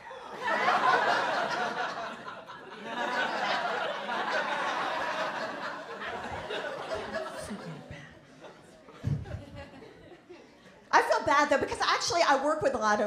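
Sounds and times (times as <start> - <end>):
audience laughing: 0.0 - 10.8.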